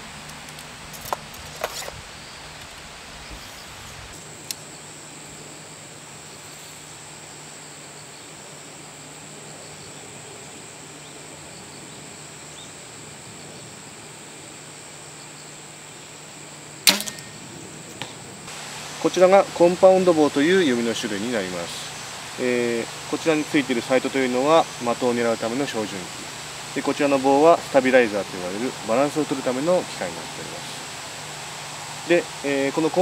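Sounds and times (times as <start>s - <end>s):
high insect trill: 0.0s - 33.0s
loud sharp snap: 16.8s - 18.2s.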